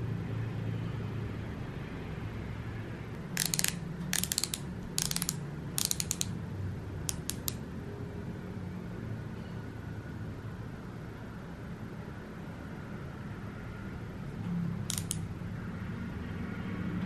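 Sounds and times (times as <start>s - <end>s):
plastic twist mechanism clicking: 3.2s - 6.4s, 7.1s - 7.6s, 14.9s - 15.2s.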